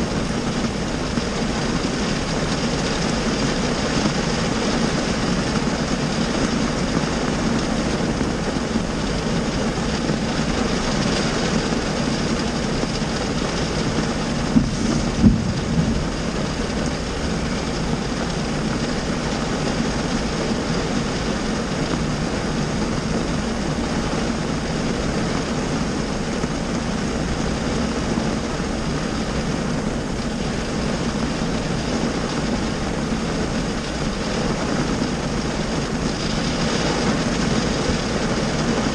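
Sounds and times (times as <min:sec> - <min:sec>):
heavy rain on car roof: 0:00.0 - 0:38.9
short thumps: 0:14.4 - 0:16.2.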